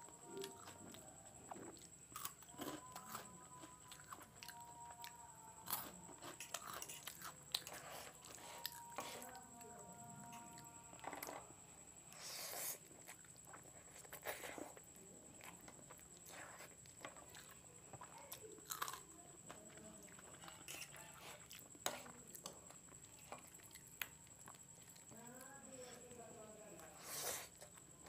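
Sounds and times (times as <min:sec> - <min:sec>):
chewing: 0:00.0 - 0:11.4, 0:12.1 - 0:26.0
crunchy bite: 0:18.6 - 0:19.1.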